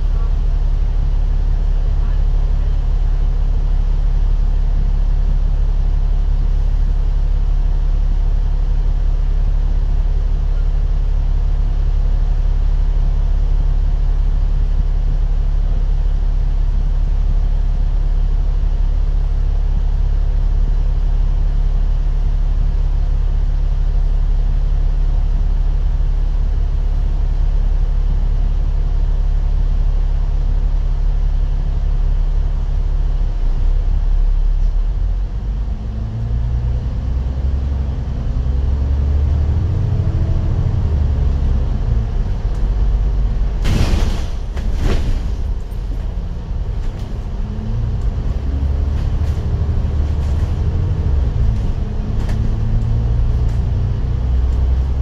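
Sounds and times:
bus diesel engine idling: 0:00.0 - 0:55.0
bus engine revving: 0:35.1 - 0:55.0.

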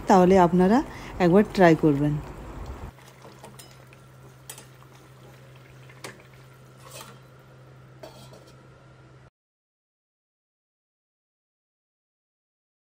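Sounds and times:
steady low hum: 0:00.0 - 0:09.3
cookware clinking: 0:03.2 - 0:07.4, 0:08.0 - 0:08.6.

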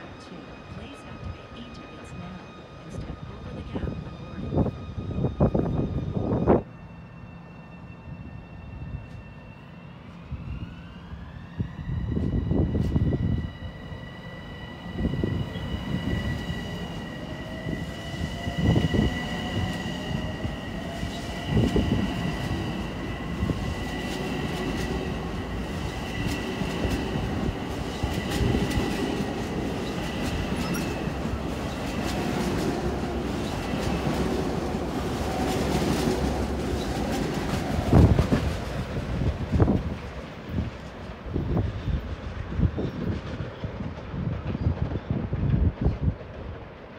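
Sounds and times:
train wheels rumbling on rail: 0:10.1 - 0:46.9.

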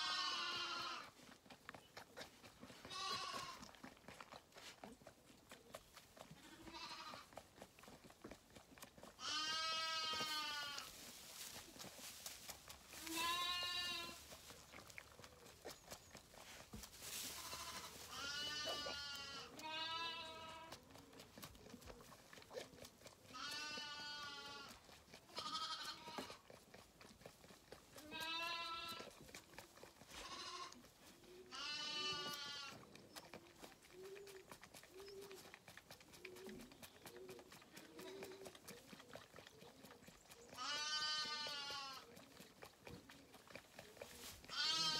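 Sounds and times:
lamb bleating: 0:00.0 - 0:01.2, 0:02.8 - 0:03.7, 0:06.3 - 0:07.4, 0:09.2 - 0:10.9, 0:13.0 - 0:14.2, 0:17.4 - 0:20.8, 0:23.3 - 0:26.4, 0:28.0 - 0:29.2, 0:30.1 - 0:30.8, 0:31.5 - 0:32.8, 0:40.6 - 0:42.1, 0:44.5 - 0:44.9.

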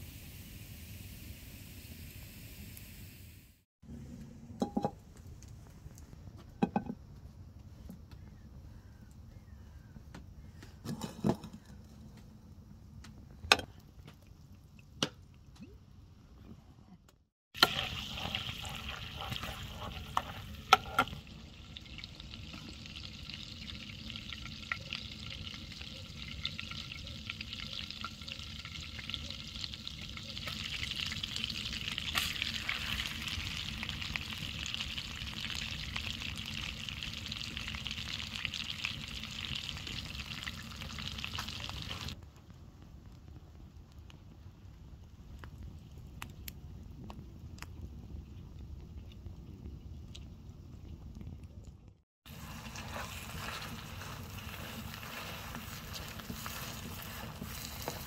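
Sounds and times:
butter sizzling in a frying pan: 0:17.6 - 0:42.2, 0:52.3 - 0:58.0.

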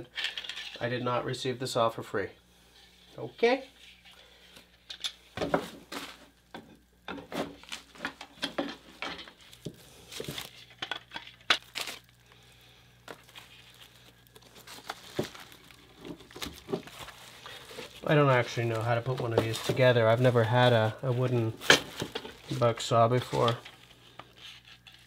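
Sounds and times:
bubble wrap crinkling: 0:05.6 - 0:06.6, 0:07.3 - 0:25.0.

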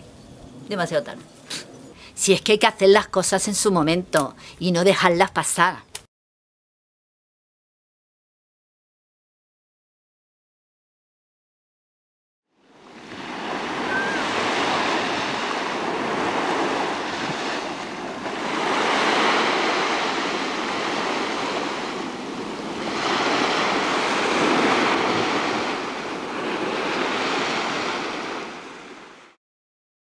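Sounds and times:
sea waves breaking on shore: 0:12.6 - 0:29.4.

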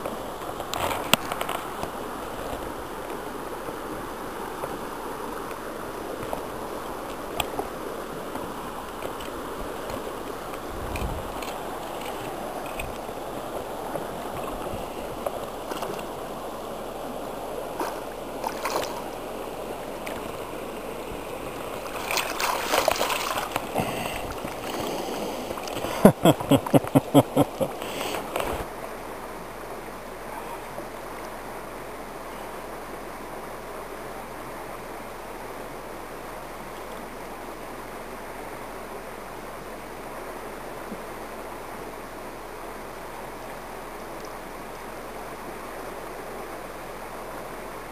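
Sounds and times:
river current rushing: 0:00.0 - 0:47.9
water splashing: 0:00.1 - 0:28.7.

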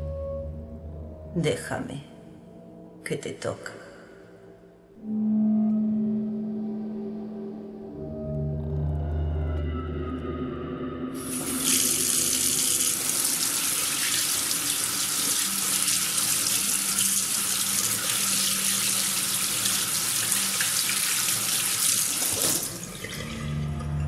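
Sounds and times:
low music drone: 0:00.0 - 0:13.5, 0:23.0 - 0:24.0
knife rinsed under water: 0:11.2 - 0:24.0
tap water running into a sink: 0:11.2 - 0:24.0.

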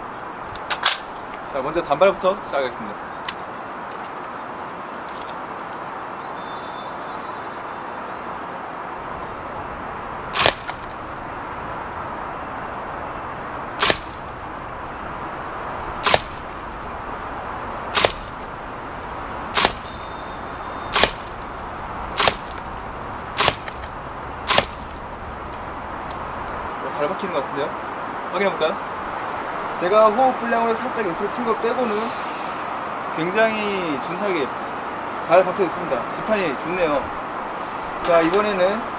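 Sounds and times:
airsoft gun shots: 0:10.3 - 0:11.0, 0:13.8 - 0:14.4, 0:16.0 - 0:16.6, 0:17.9 - 0:18.5, 0:19.5 - 0:20.2, 0:20.9 - 0:21.5, 0:22.2 - 0:22.6, 0:23.4 - 0:25.0.

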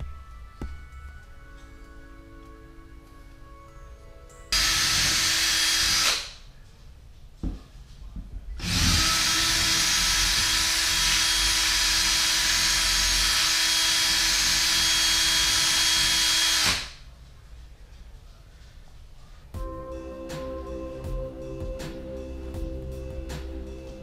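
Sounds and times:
cordless drill drilling into wall: 0:04.6 - 0:06.3, 0:08.6 - 0:17.0.

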